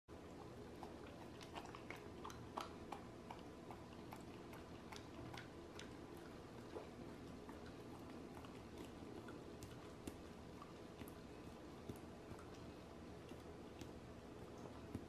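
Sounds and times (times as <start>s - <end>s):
dog licking and chewing: 0.1s - 15.0s.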